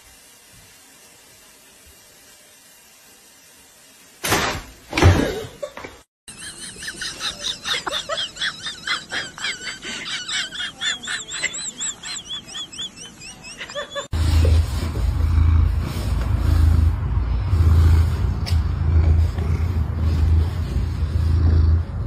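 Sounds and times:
person laughing high-pitched: 0:06.3 - 0:14.2.

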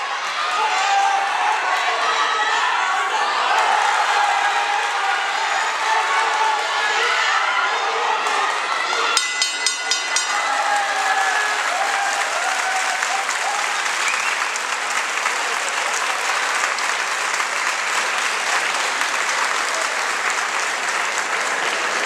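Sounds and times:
people shouting: 0:00.0 - 0:13.7
audience applauding: 0:09.2 - 0:22.0.

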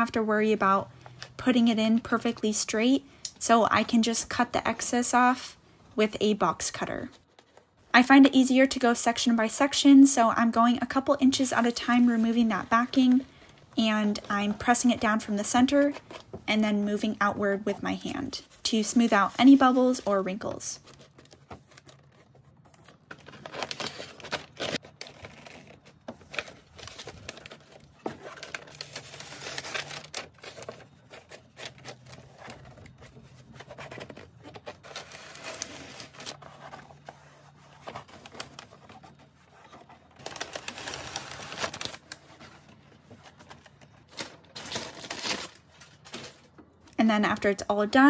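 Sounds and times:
wallpaper backing crinkling: 0:10.6 - 0:48.0.

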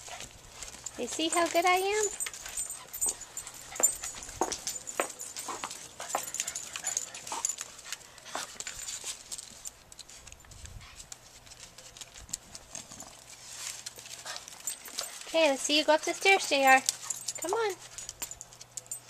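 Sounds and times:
dog sounds: 0:00.0 - 0:09.1.

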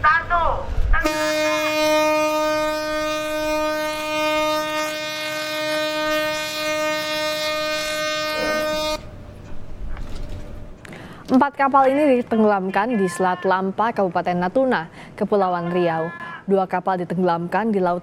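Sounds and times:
ship's horn blast: 0:00.9 - 0:09.8.

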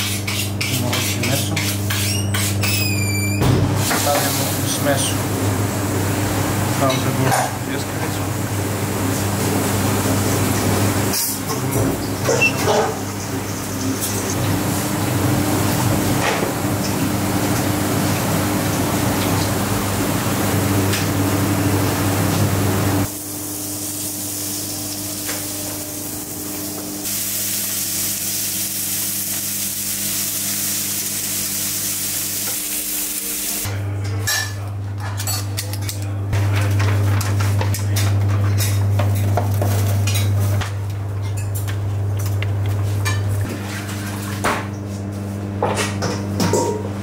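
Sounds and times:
meat sizzling on a grill: 0:23.1 - 0:33.6.

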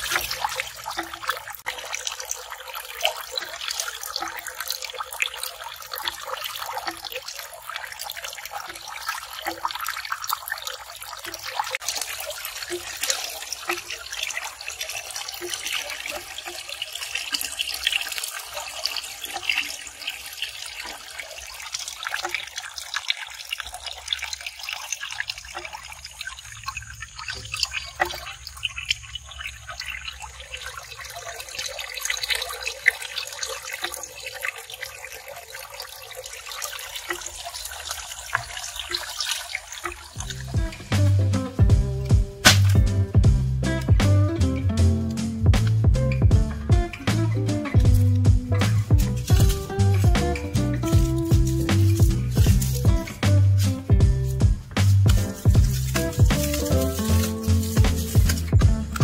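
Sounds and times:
water drips pattering: 0:00.0 - 0:59.0
water trickling into a pond: 0:00.0 - 0:59.0.

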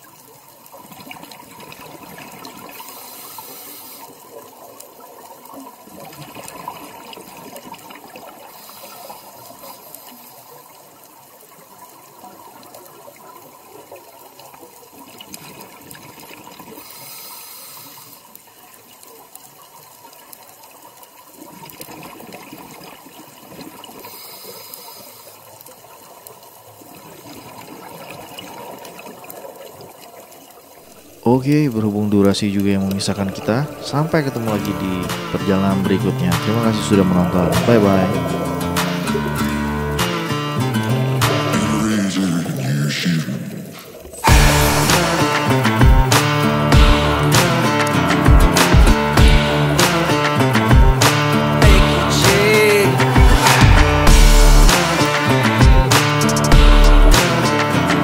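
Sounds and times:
underwater wash of moving water: 0:00.0 - 0:40.3, 0:42.0 - 0:46.5
exhaled air bubbling: 0:30.7 - 0:34.8.

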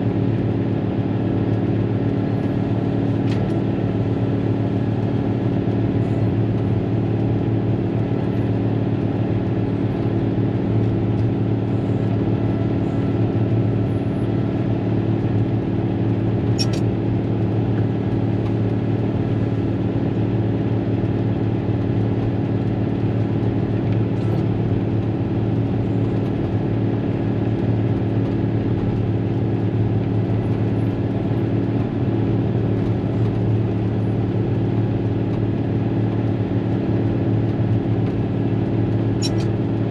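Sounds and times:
diesel engine running: 0:00.0 - 0:39.9
sharp click: 0:16.6 - 0:16.9, 0:39.2 - 0:39.5.

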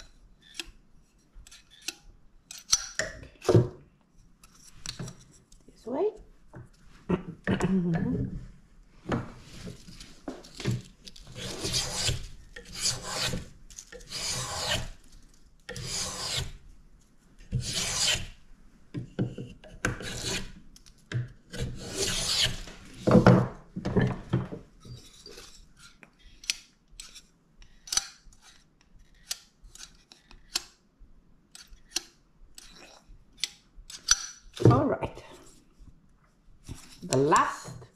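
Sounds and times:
plane shaving wood: 0:11.3 - 0:13.4, 0:14.0 - 0:14.9, 0:15.7 - 0:16.5, 0:17.6 - 0:18.3, 0:20.0 - 0:20.5, 0:21.6 - 0:22.8.

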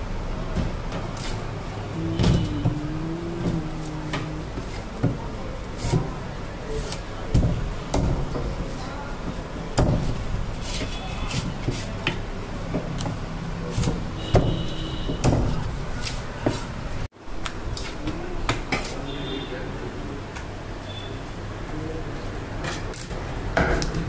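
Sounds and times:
background voices: 0:01.8 - 0:06.3.

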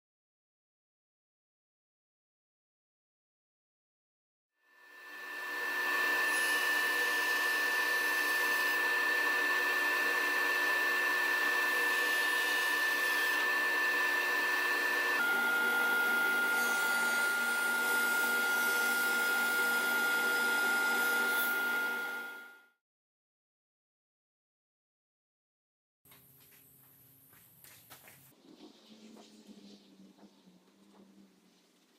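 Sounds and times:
table saw motor whine: 0:04.7 - 0:22.8.

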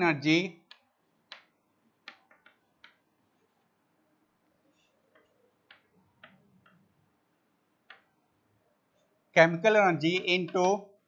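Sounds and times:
chalk tapping on blackboard: 0:00.6 - 0:03.1.

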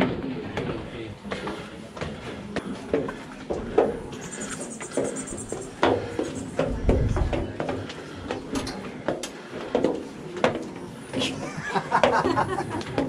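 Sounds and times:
footsteps on steel staircase: 0:00.0 - 0:04.2, 0:04.8 - 0:11.2.

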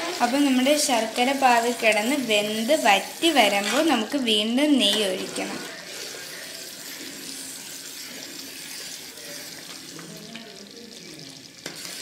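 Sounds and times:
thick puree bubbling and hissing: 0:05.4 - 0:12.0.

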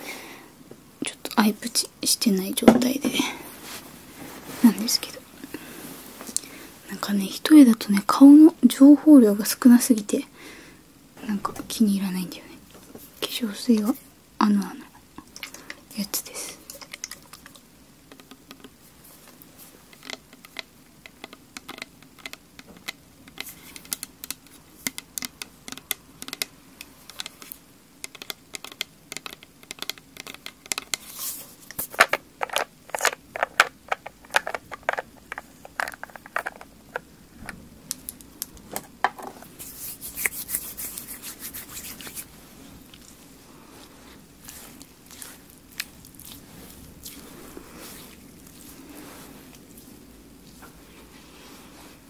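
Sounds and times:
nails tapping on plastic bottle: 0:19.9 - 0:26.5, 0:27.1 - 0:31.0, 0:31.8 - 0:39.4
soft hissing rush: 0:33.0 - 0:52.0.

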